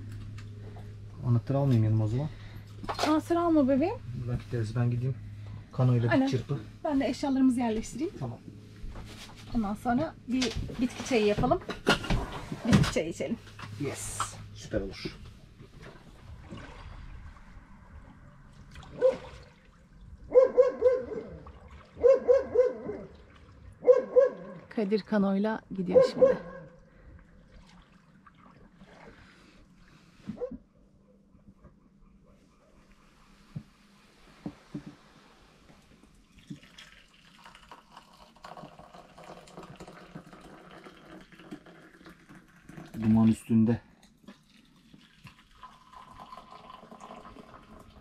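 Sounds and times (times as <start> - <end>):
dog barking: 18.9 - 19.3, 20.3 - 21.4, 22.0 - 23.1, 23.8 - 24.7, 25.9 - 26.8, 30.4 - 30.6
water hissing and trickling: 35.6 - 43.7, 44.4 - 48.0.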